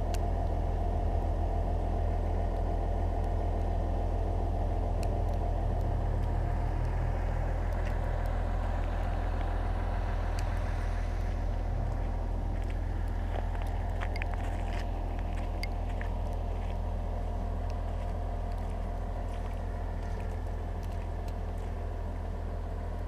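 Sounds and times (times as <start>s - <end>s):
engine idling: 0.0s - 23.0s
faint ticks: 10.3s - 16.8s.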